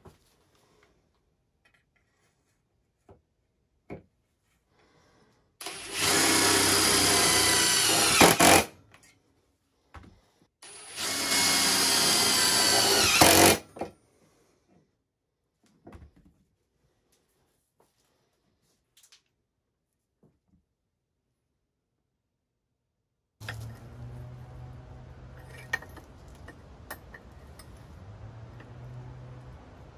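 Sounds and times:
impact driver driving screws: 5.6s - 8.7s, 10.9s - 13.6s.

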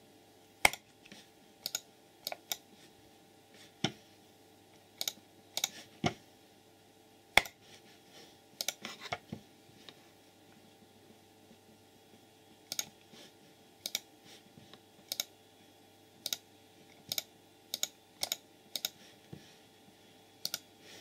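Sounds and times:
computer mouse clicking: 0.6s - 0.8s, 1.6s - 2.7s, 5.0s - 5.8s, 7.4s - 7.6s, 8.6s - 8.8s, 12.7s - 13.0s, 13.8s - 14.1s, 15.1s - 15.3s, 16.2s - 16.4s, 17.0s - 19.0s, 20.4s - 20.7s.

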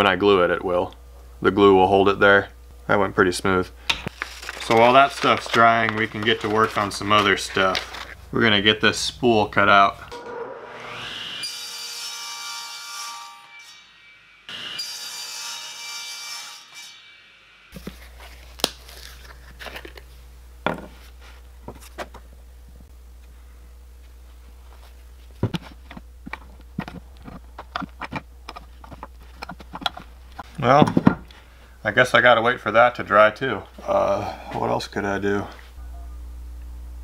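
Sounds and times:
table saw cutting wood: 10.1s - 17.7s
wood blocks clicking and tapping: 25.4s - 30.0s.

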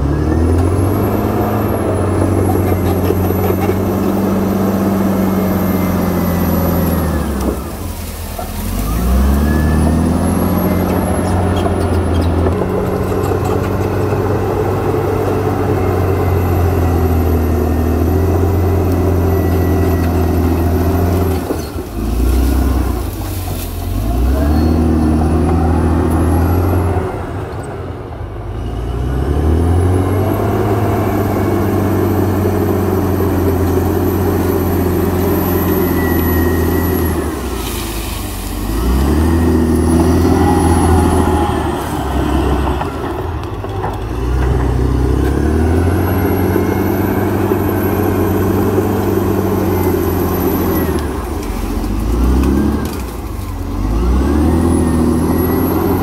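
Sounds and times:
bulldozer diesel engine running hard: 0.0s - 56.0s.

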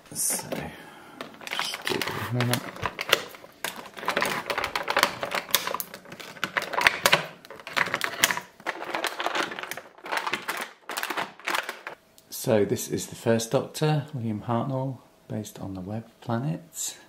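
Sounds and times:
plastic packaging crackling: 1.2s - 12.0s.

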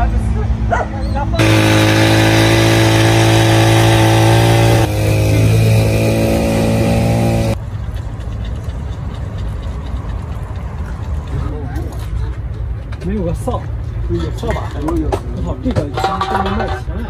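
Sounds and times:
hedge trimmer engine running: 1.4s - 7.6s.

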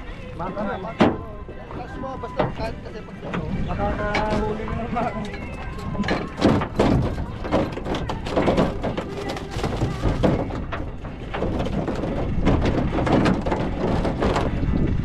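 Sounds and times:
knocks and thuds on boat hull: 5.8s - 15.0s.

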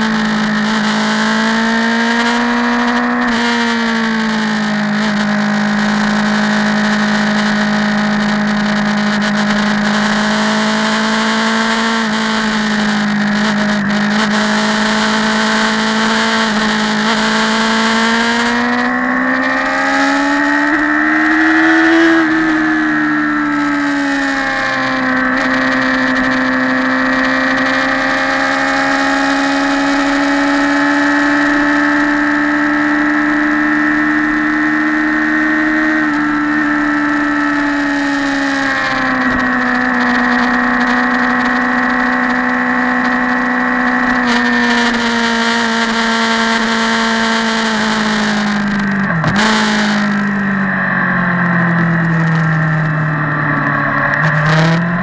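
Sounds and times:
motorcycle engine running: 0.0s - 55.0s.

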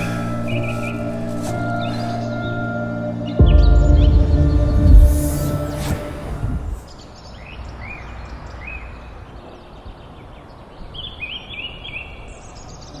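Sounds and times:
deep music track: 0.0s - 8.5s
birds chirping: 0.0s - 13.0s
steady outdoor hiss: 0.0s - 13.0s
brief rush of noise: 4.6s - 7.0s.

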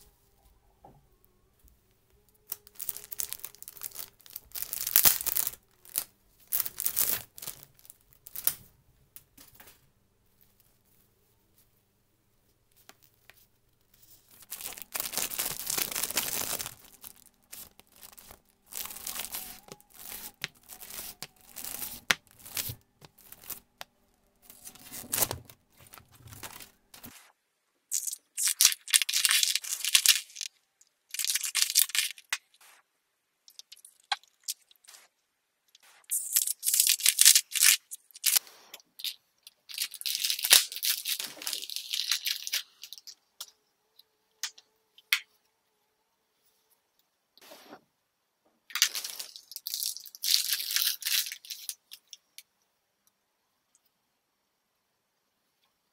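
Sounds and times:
plastic bags crinkling and tearing: 2.3s - 8.6s, 14.0s - 23.8s, 24.4s - 27.2s, 27.9s - 30.5s, 31.1s - 32.8s, 35.8s - 38.4s, 39.0s - 43.5s, 48.7s - 52.2s.

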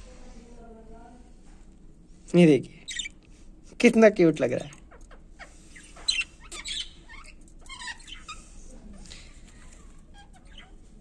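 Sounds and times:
budgerigars chirping and chattering: 2.9s - 3.2s, 4.5s - 11.0s.

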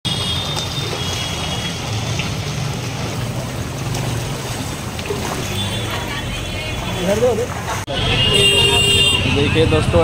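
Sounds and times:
water splashing around wading legs: 0.1s - 7.8s.

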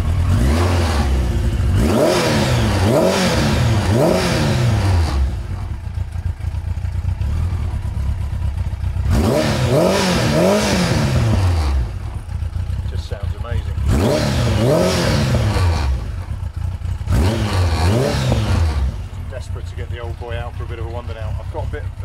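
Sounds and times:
motorcycle engine revving: 0.0s - 22.0s.

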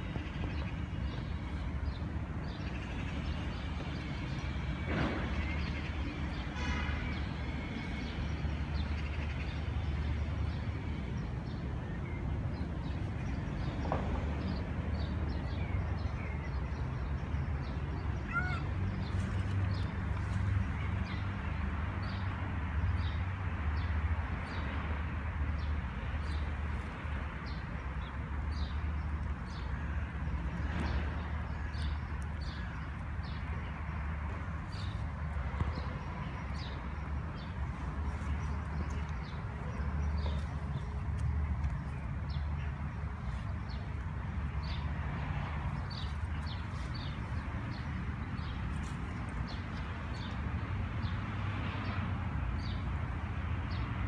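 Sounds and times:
distant traffic rumble: 0.0s - 54.0s
harsh caw-like bird calls: 18.2s - 18.8s.

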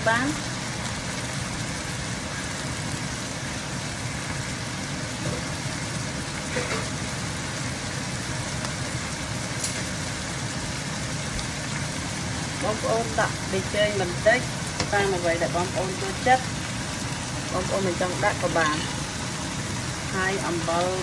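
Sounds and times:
meat sizzling in a wok: 0.0s - 21.0s.

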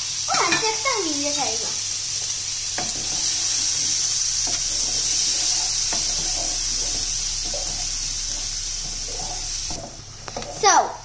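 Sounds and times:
onion sizzling in butter: 0.0s - 11.0s
wooden spoon scraping a pan: 2.2s - 10.8s.

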